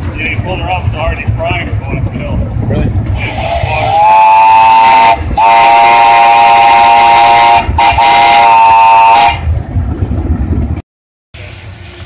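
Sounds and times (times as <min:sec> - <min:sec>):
steam locomotive whistle blasts: 0:03.2 - 0:09.4.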